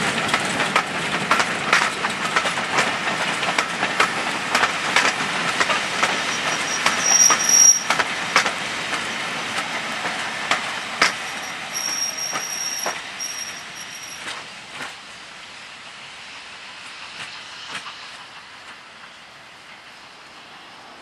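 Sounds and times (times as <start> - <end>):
wheels clicking over rail joints: 0.2 - 15.0
high-pitched wheel squeal: 6.0 - 8.0, 11.2 - 14.3.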